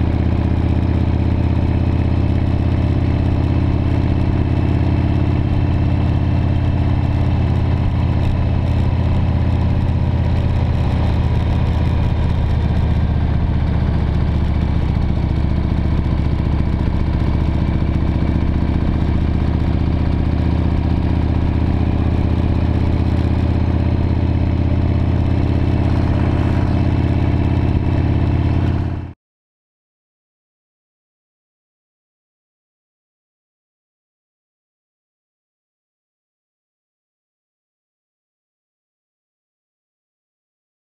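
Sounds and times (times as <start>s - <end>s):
motorcycle engine running: 0.0s - 29.2s.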